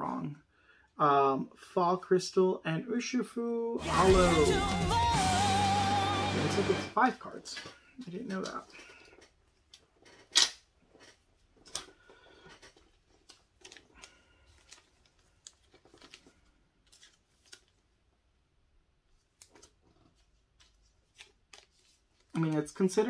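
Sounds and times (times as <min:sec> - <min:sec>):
wrapper rustling: 0:07.1 - 0:18.1, 0:19.1 - 0:23.0.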